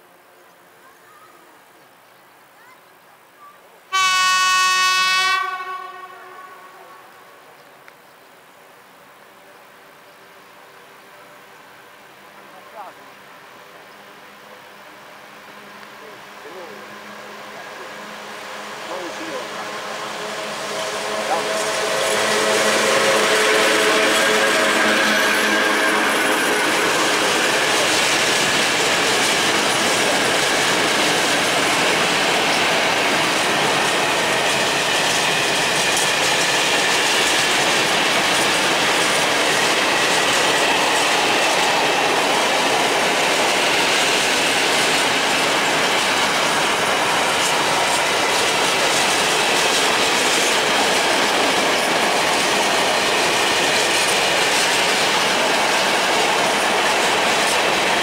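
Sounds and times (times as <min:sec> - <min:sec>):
steel wheels clattering on rails: 0:16.7 - 0:58.0.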